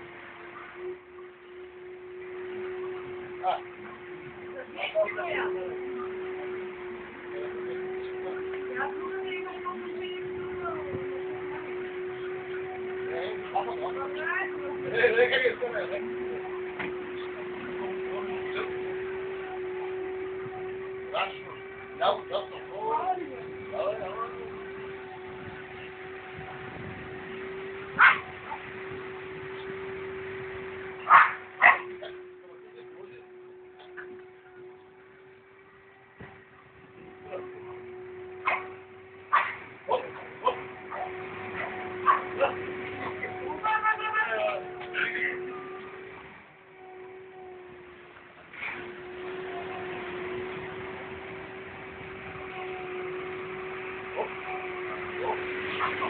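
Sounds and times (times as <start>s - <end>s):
steady hum: 0.0s - 56.0s
dog barking: 28.0s - 28.6s, 31.1s - 31.9s, 38.4s - 39.6s, 40.9s - 42.4s.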